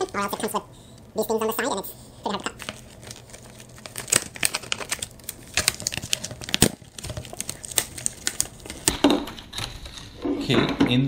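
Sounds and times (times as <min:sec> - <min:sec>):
plastic packaging crackling: 0:02.3 - 0:10.2.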